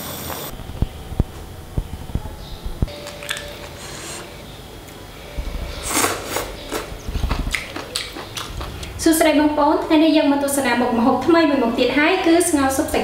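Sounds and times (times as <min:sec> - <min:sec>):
noodles being slurped: 0:05.8 - 0:08.9.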